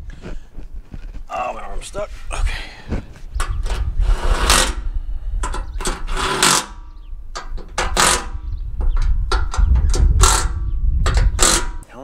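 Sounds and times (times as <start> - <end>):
metal-on-metal rattling and clanking: 5.4 - 11.9.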